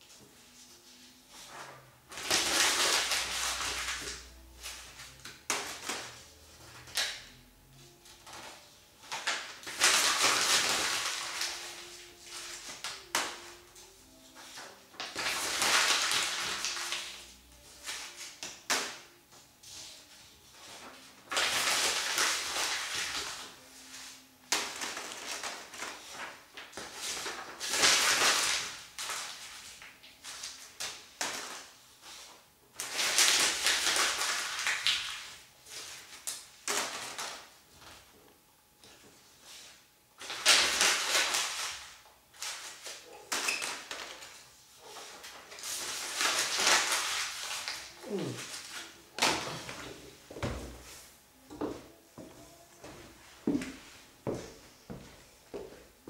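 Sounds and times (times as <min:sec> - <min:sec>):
paper rustling: 0:00.1 - 0:18.9, 0:19.6 - 0:38.0, 0:38.9 - 0:50.0
paper crumpling: 0:00.4 - 0:07.2, 0:08.2 - 0:18.4, 0:20.6 - 0:37.5, 0:40.2 - 0:49.9.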